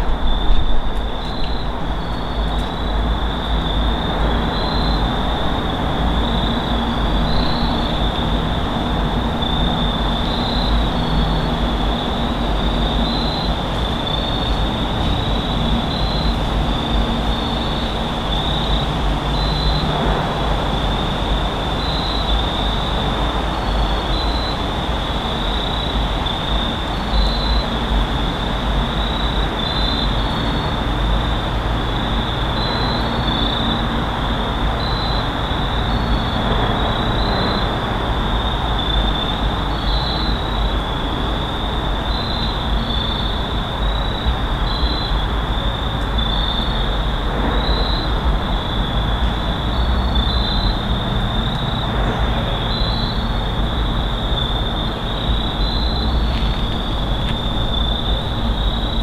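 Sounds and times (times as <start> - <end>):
constant low rumble: 0.0 - 59.0
high-pitched insect chorus: 0.0 - 59.0.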